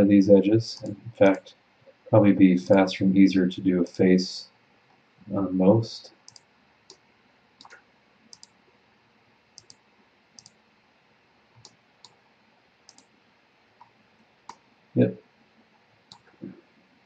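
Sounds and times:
computer mouse clicking: 6.2 - 7.0, 7.6 - 8.6, 9.6 - 9.8, 10.4 - 10.6, 11.6 - 12.2, 12.9 - 13.1, 16.1 - 16.5.

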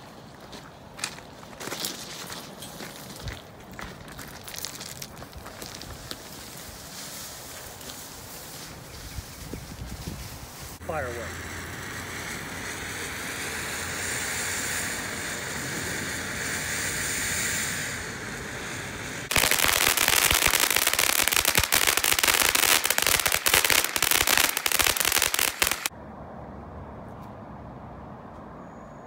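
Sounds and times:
firework fountain hissing: 5.7 - 25.9
loud rapid crackling: 19.2 - 25.9.

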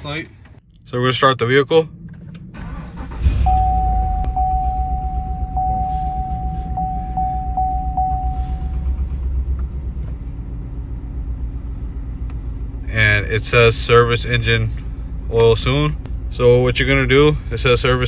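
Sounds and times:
car engine starting and idling: 0.0 - 18.0
steady high tone: 3.0 - 9.3.

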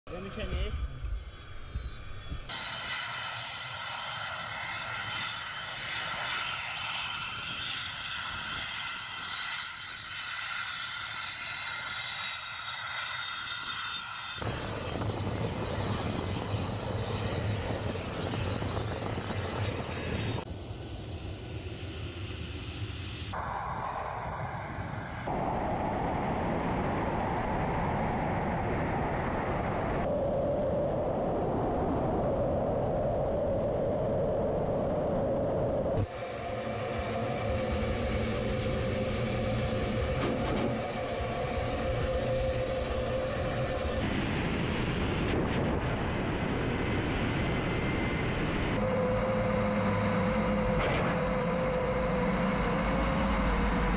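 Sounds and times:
jet engine rumble: 0.1 - 3.0, 14.4 - 53.9
jet engine turbine whine: 0.1 - 53.9
loud engine and airflow rush: 14.4 - 53.9.

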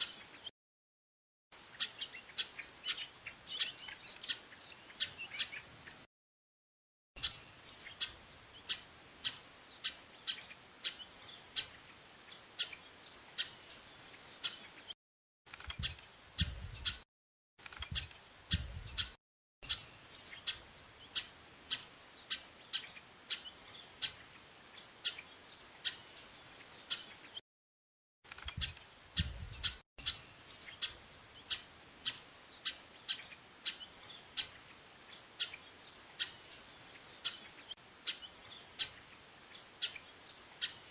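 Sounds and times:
blackbird call notes: 1.7 - 6.0, 7.2 - 12.0, 15.7 - 17.0, 17.7 - 27.4, 28.3 - 39.0, 39.6 - 40.9.

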